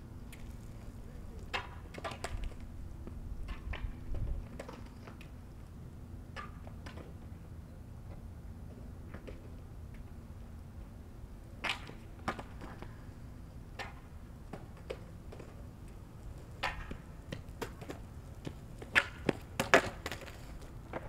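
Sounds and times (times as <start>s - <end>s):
skateboard wheels rumbling on asphalt: 0.0s - 21.0s
boards clacking on pavement: 0.3s - 5.4s, 11.6s - 13.0s, 13.7s - 21.0s.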